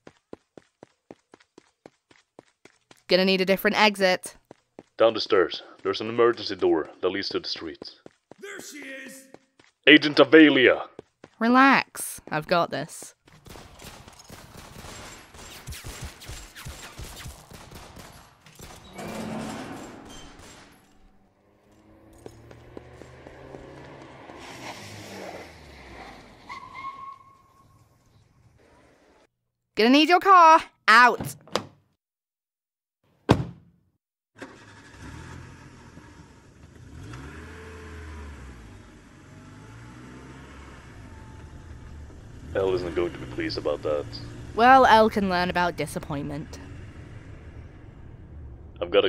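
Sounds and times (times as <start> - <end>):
rapid gunshots and impacts: 13.2 - 21.1
car engine starting and revving: 21.2 - 26.5, 34.4 - 44.7
car door thumping shut: 33.3 - 33.7.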